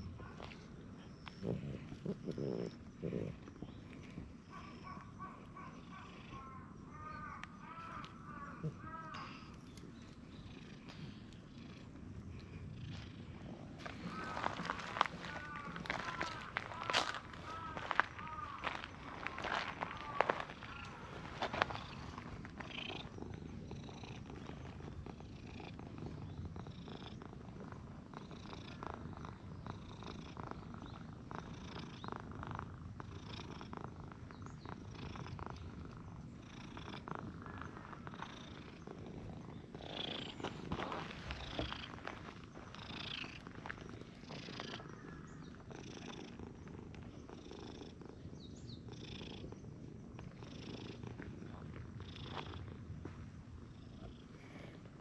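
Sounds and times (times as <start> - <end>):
cat purring: 0.0 - 7.0, 8.4 - 17.4, 20.4 - 55.0.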